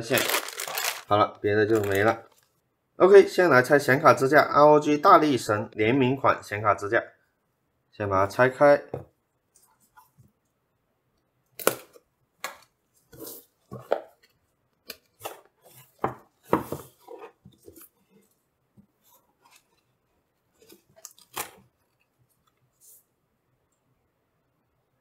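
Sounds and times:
packaging knocks and rustles: 0.1s - 1.1s.

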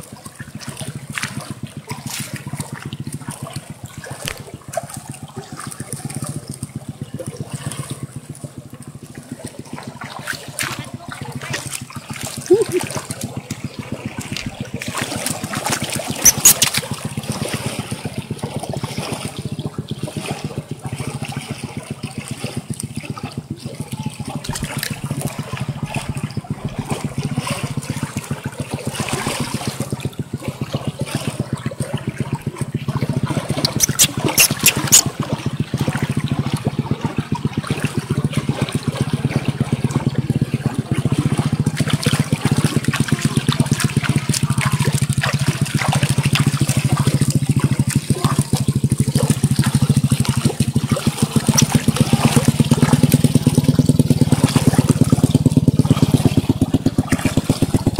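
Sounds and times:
river water trickling over stones: 0.0s - 57.9s
water splashing: 0.0s - 57.9s.

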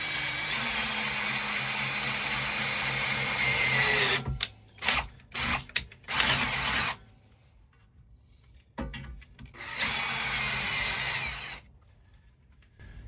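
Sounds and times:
cordless drill boring through steel: 0.0s - 7.0s, 9.6s - 11.7s.

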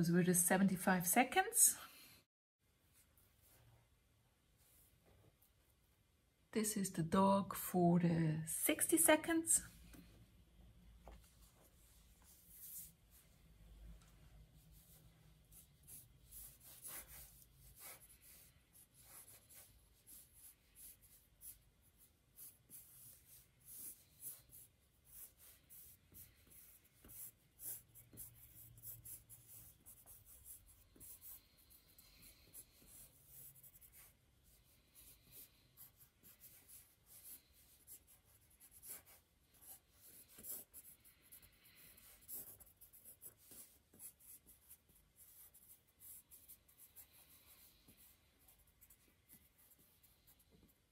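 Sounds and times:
pencil scratching on paper: 11.7s - 13.2s, 14.6s - 50.9s.

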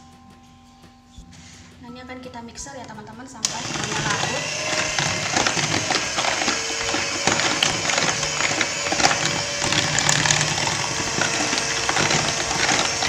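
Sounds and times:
beaters rattling against plastic bowl: 2.8s - 13.0s
electric hand mixer whirring: 3.4s - 13.0s.

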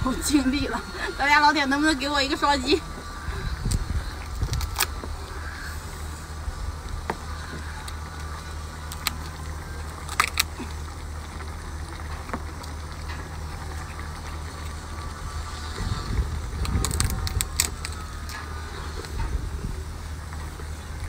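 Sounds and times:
steady low hum: 0.0s - 21.0s
lobster shell cracking: 8.9s - 10.6s, 16.6s - 18.4s.

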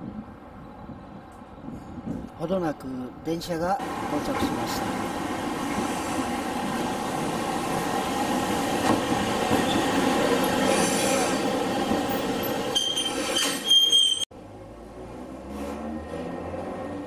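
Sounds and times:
tram wheels rumbling: 3.8s - 14.2s
high brake squeal: 9.6s - 11.5s, 12.3s - 14.3s.

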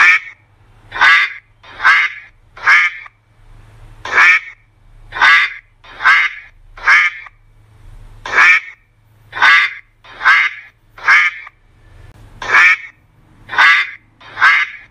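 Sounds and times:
duck quacking: 0.0s - 3.2s, 4.0s - 7.4s, 8.2s - 11.6s, 12.4s - 14.9s.

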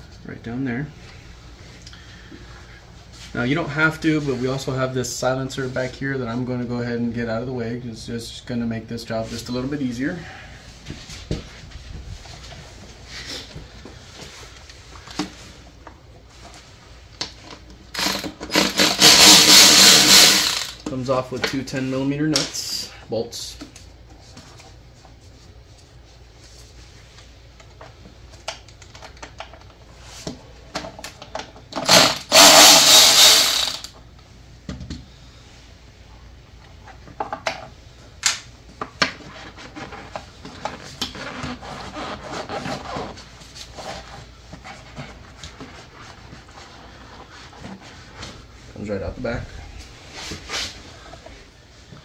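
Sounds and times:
cordless ratchet running: 17.9s - 20.8s, 31.8s - 33.9s.

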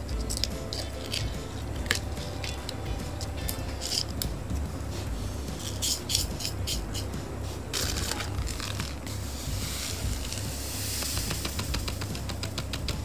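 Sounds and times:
rush of sliding sand: 7.3s - 11.6s.

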